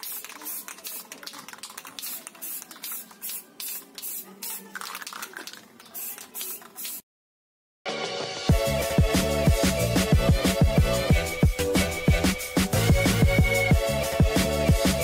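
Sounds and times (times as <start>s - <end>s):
aerosol spray can hissing: 0.0s - 7.0s.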